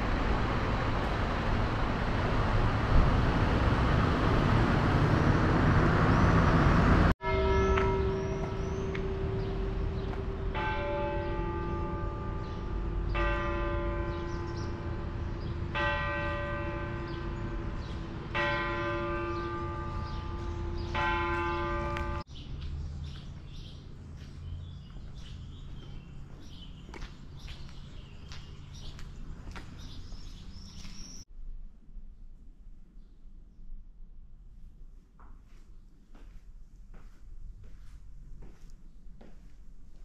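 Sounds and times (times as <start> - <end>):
church bell tolling: 7.2 - 22.3.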